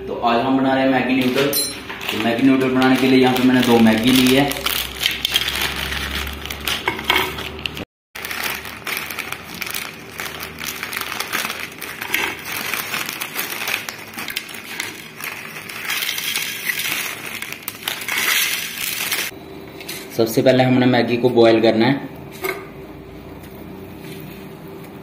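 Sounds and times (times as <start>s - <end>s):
plastic wrappers crinkling: 1.0s - 19.4s
dry noodles crackling on a plate: 1.9s - 19.3s.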